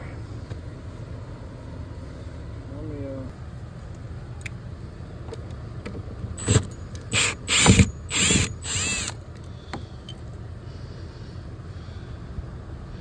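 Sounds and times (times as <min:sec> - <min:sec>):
cordless driver motor spinning: 0:06.4 - 0:09.2.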